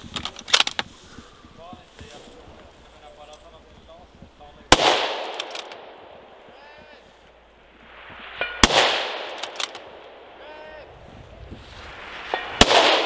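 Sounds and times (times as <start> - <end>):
gunshot echo rolling: 4.7 - 6.4, 7.8 - 10.4, 11.8 - 13.0
rifle shots cracking: 4.7 - 6.4, 8.0 - 10.4, 12.1 - 13.0.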